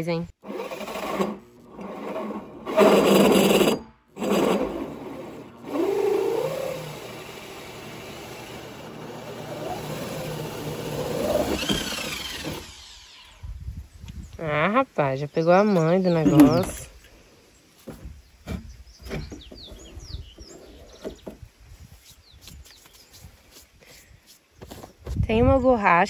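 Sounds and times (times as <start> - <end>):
power drill hole saw cutting plastic: 0.4 - 13.4.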